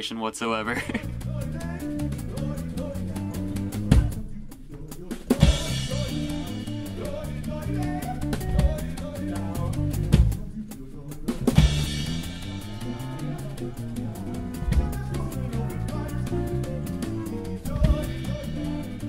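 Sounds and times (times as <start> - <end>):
bass line: 0.8 - 19.0
kick drum hits: 3.8 - 4.2, 8.4 - 9.0, 14.6 - 15.2.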